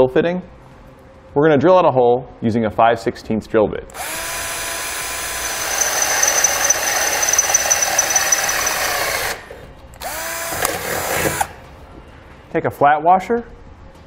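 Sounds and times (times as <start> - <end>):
drill bit squealing in metal: 4.0 - 9.5.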